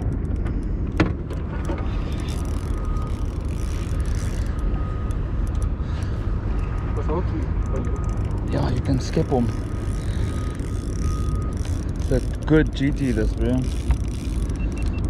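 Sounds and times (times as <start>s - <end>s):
boat engine rumble: 0.0s - 15.0s.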